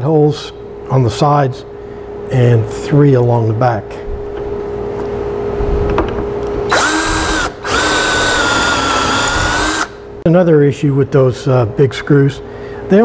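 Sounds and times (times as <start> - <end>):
cordless drill boring into wood: 6.7 - 10.0.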